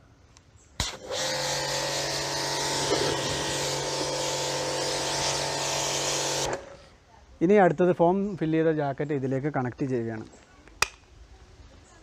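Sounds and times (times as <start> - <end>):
pressure washer motor humming: 0.8 - 6.9
water jet hissing: 0.8 - 6.9.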